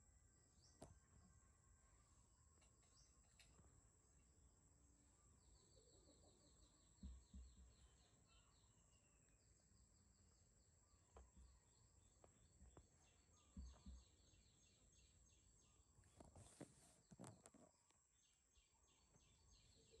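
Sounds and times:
soft low thumps: 0:06.9 - 0:07.9, 0:12.2 - 0:14.2.

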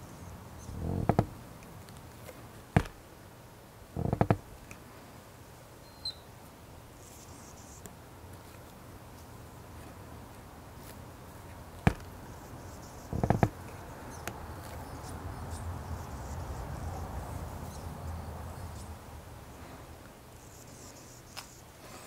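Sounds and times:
low steady rumble: 0:00.0 - 0:01.6
sharp clicks and knocks: 0:00.8 - 0:01.4, 0:02.7 - 0:03.0, 0:04.0 - 0:04.5, 0:11.8 - 0:12.1, 0:13.1 - 0:13.6.

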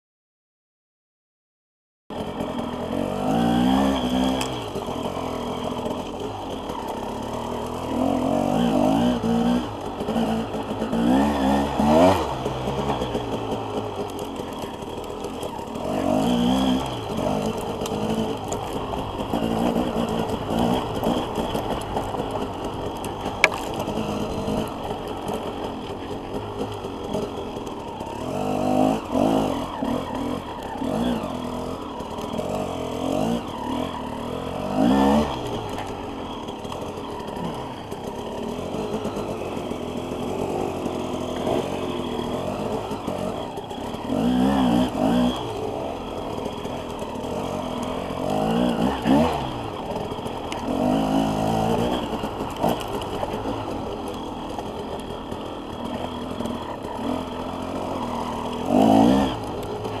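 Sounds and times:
dirt bike engine revving: 0:02.1 - 1:00.0.

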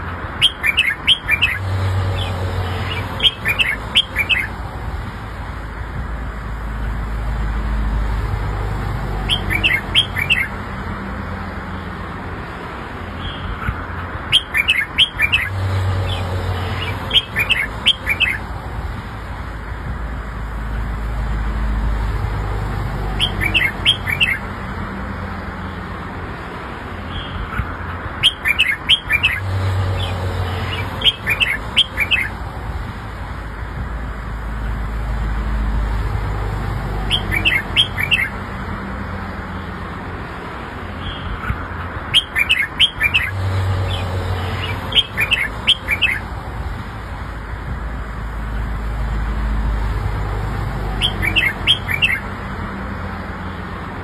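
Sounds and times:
bird singing bright notes: 0:00.4 - 0:04.6, 0:09.2 - 0:10.6, 0:13.2 - 0:18.5, 0:23.1 - 0:24.5, 0:28.2 - 0:32.4, 0:37.0 - 0:38.4, 0:41.0 - 0:46.3, 0:50.9 - 0:52.3.

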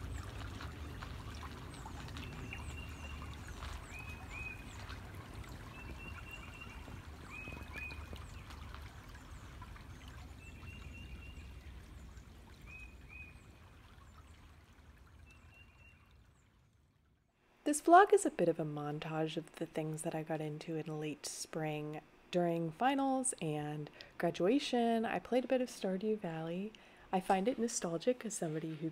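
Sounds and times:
creek water trickling: 0:00.0 - 0:21.5.

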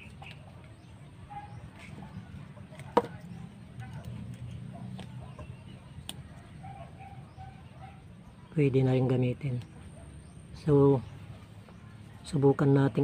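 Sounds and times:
chickens clucking: 0:00.0 - 0:08.0.

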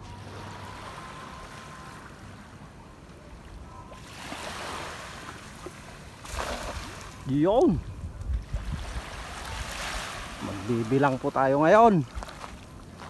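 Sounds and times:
small waves washing at shore: 0:00.0 - 0:13.0
cast net splashing into water: 0:06.2 - 0:07.2.

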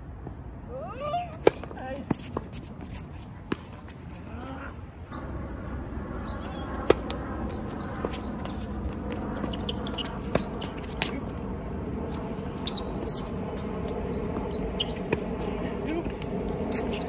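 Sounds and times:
shoes scuffing on court: 0:06.4 - 0:17.0
tennis racket hitting ball: 0:06.7 - 0:11.3.

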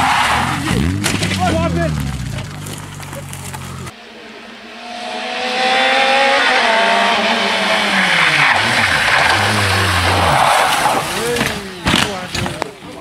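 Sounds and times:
rally car engine revving: 0:00.0 - 0:12.7
tyre noise rushing: 0:06.2 - 0:13.0.

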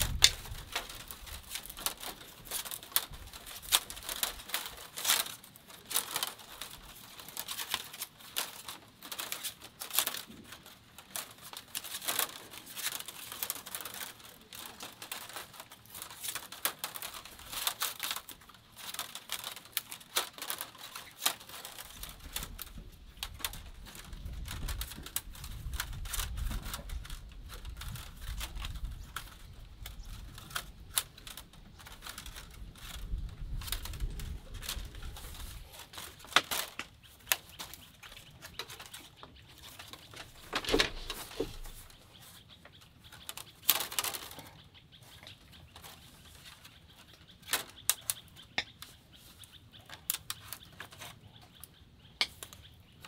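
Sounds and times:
bamboo snaps: 0:00.0 - 0:06.7, 0:52.2 - 0:52.6
bamboo strips clicking and rustling: 0:00.0 - 0:53.0.

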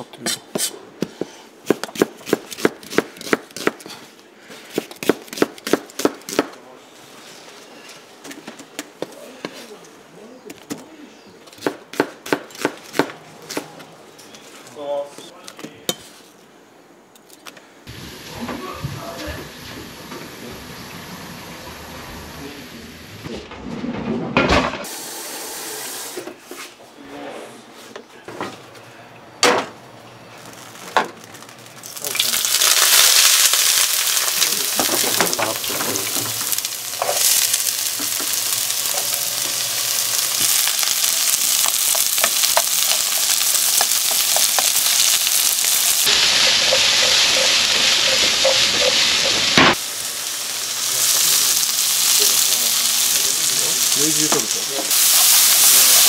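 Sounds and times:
oil hissing into frying pan: 0:32.0 - 0:56.0.

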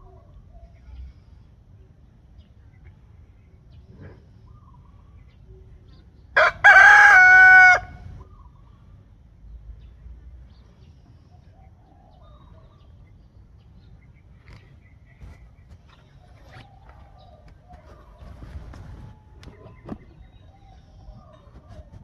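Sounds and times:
rooster crowing: 0:06.4 - 0:08.1.

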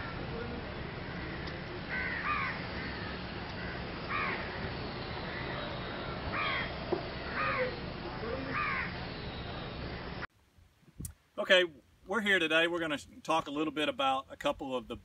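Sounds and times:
low background noise: 0:00.0 - 0:15.0
crows cawing: 0:00.9 - 0:04.7, 0:05.3 - 0:07.8, 0:08.5 - 0:09.0.

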